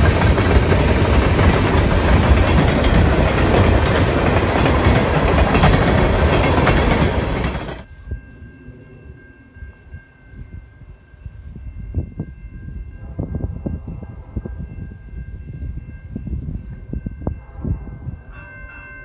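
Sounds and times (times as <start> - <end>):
freight train wheels clattering: 0.0 - 7.9.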